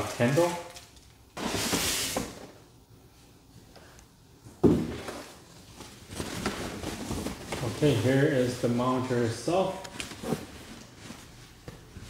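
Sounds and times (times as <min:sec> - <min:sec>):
foam wrap rustling: 0:05.3 - 0:08.8.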